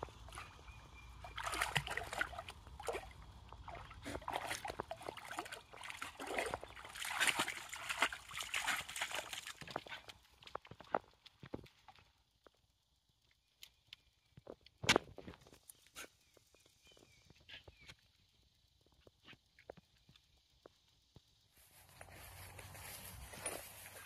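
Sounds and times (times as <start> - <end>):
dog splashing through water: 1.2 - 10.2.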